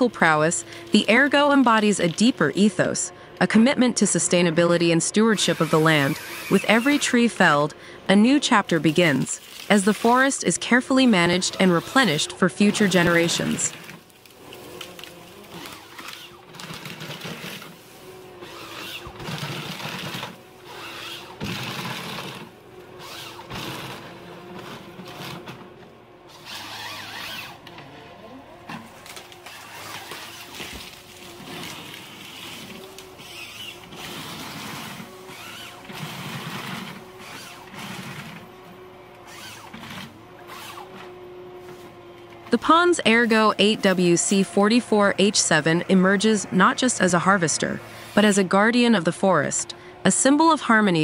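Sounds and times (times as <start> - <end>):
harvester machine hum: 0.0 - 51.0
rasping crackling of stems: 5.4 - 8.0, 8.6 - 10.4, 11.2 - 25.6, 26.3 - 27.8, 28.7 - 38.5.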